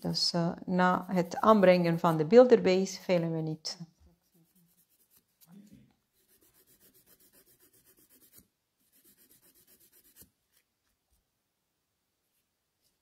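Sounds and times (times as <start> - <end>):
nail file rasping on fingernail: 6.2 - 10.3.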